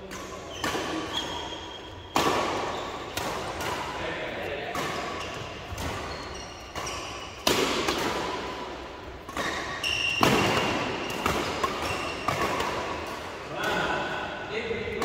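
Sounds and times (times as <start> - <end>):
racket striking shuttlecock: 0.0 - 14.1
shoes thudding and squeaking: 0.1 - 3.2, 5.1 - 7.6, 9.3 - 12.6.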